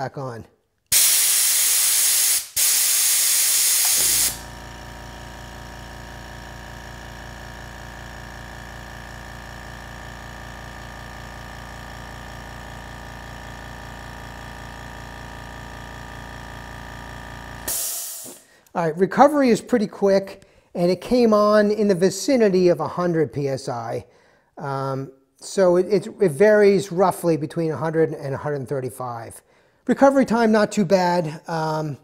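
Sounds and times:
compressed air hissing from blowgun: 0:00.9 - 0:04.5, 0:17.7 - 0:18.6
air compressor motor humming: 0:00.9 - 0:18.7.

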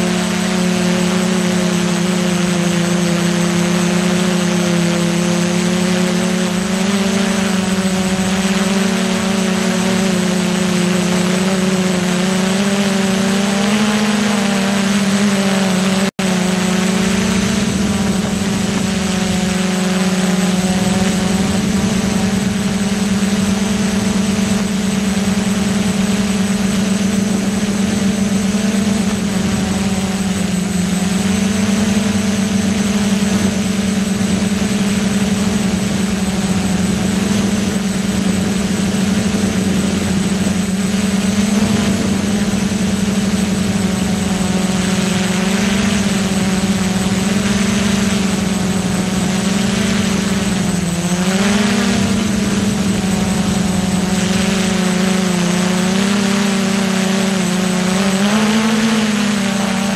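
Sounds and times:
drone motors humming: 0:00.0 - 0:59.9.

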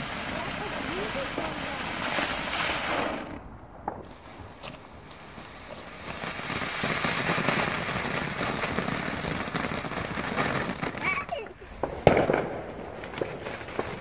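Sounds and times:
firework hissing and crackling: 0:00.0 - 0:14.0.

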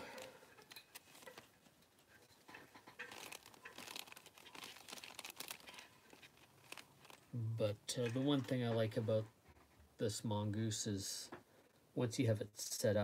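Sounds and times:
packets crinkling and rustling: 0:00.0 - 0:01.8, 0:02.7 - 0:09.0.

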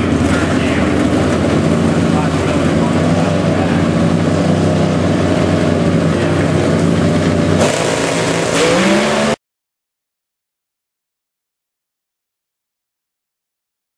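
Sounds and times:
race car engine running loud: 0:00.0 - 0:09.4.

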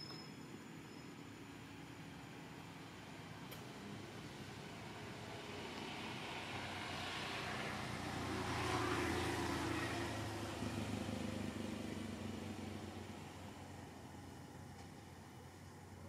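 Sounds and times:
vehicle passing by: 0:03.8 - 0:14.7.

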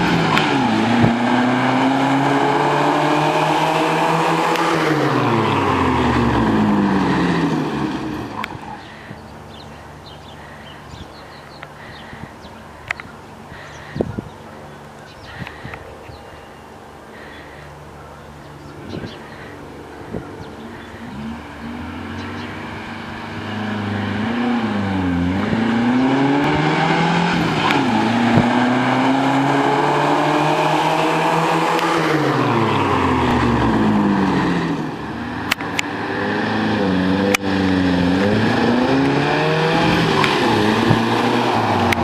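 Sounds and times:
pickup truck engine passing: 0:00.0 - 0:09.8, 0:19.2 - 0:42.0.

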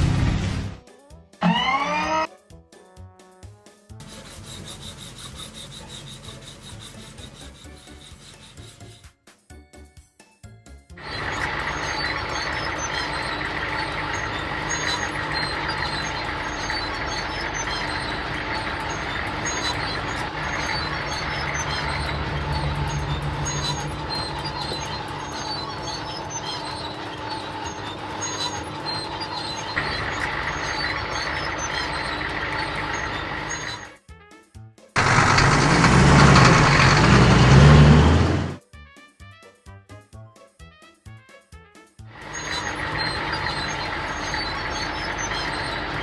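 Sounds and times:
cartoon road roller engine running: 0:01.4 - 0:02.3, 0:04.0 - 0:09.1, 0:11.0 - 0:34.0, 0:35.0 - 0:38.6, 0:42.1 - 0:46.0.

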